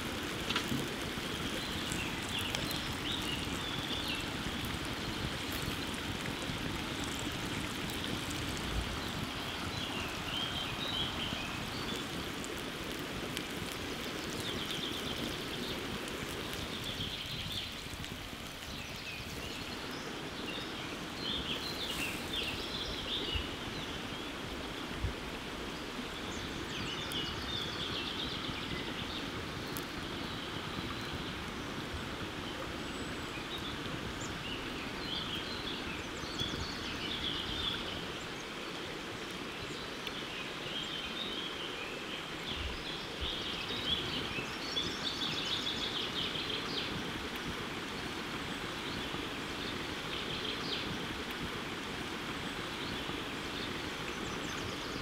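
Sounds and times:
outdoor background hiss: 0.0s - 55.0s
small birds chirping: 0.2s - 24.8s.

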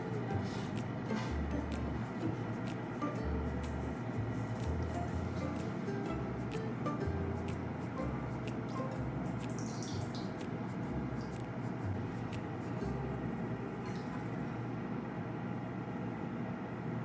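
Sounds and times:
small drips and clicks: 8.4s - 11.6s, 13.8s - 14.5s
liquid pouring: 9.3s - 10.4s, 13.8s - 14.5s.

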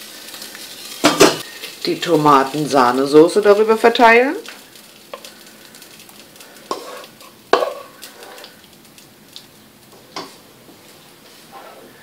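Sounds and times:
spoon scraping sauce from pan: 6.6s - 8.6s.

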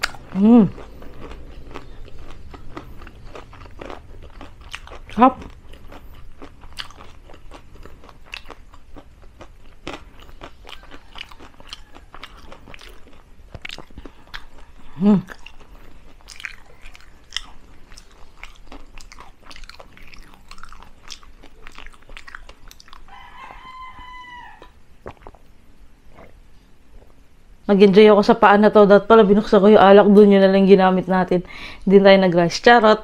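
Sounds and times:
person humming: 0.0s - 0.8s, 14.9s - 15.3s
chewing crispy fried food: 0.0s - 25.4s.

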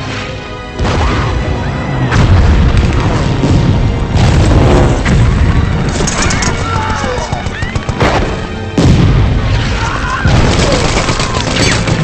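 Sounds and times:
film music score: 0.0s - 12.0s
bomb explosions: 2.1s - 5.9s, 8.0s - 10.8s.

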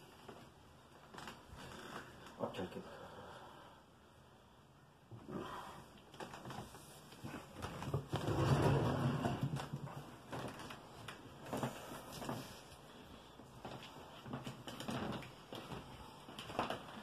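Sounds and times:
shuffling and chair scraping: 6.2s - 17.0s.

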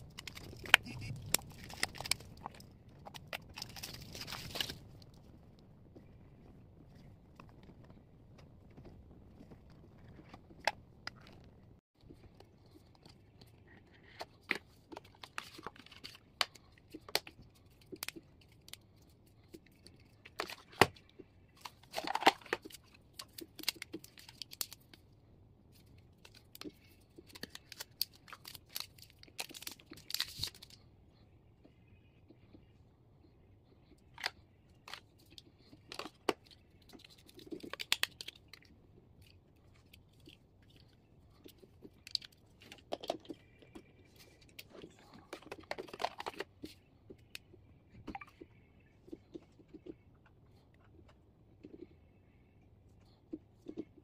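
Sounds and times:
packaging crinkling and tearing: 0.0s - 5.2s, 21.6s - 25.0s, 26.2s - 30.8s, 34.2s - 38.7s.

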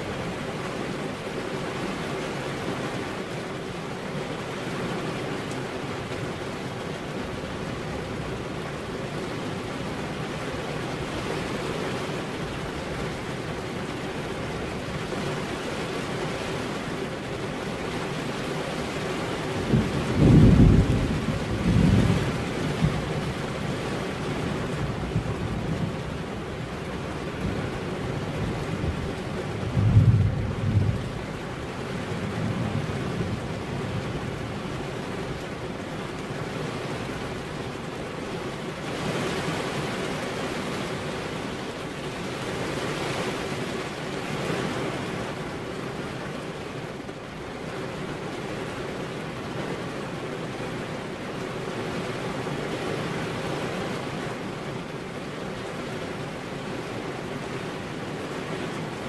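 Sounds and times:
steady rain: 0.0s - 59.0s
low thunder rumble: 19.6s - 23.8s, 27.4s - 34.8s.

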